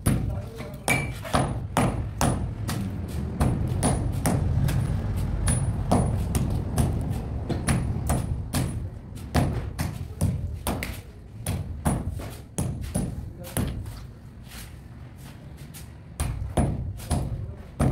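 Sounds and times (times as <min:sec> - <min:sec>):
sharp knocks: 0:00.0 - 0:13.9, 0:16.2 - 0:17.9
low rumble: 0:02.3 - 0:09.8.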